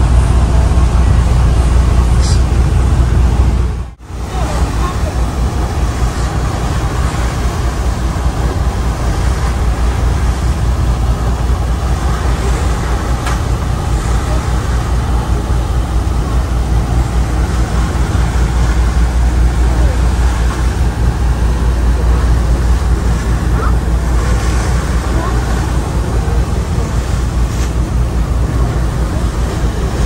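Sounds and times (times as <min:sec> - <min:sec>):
constant noisy rush: 0:00.0 - 0:30.0
diesel engines droning: 0:00.0 - 0:30.0.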